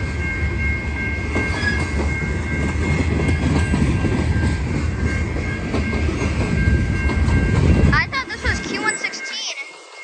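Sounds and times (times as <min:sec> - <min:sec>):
freight train wheels rumbling: 0:00.0 - 0:10.0
high-pitched tone: 0:06.6 - 0:10.0.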